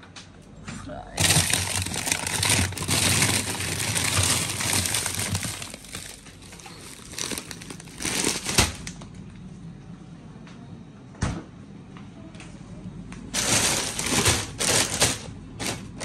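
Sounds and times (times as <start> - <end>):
plastic bags crinkling: 1.2 - 9.1, 13.3 - 16.0.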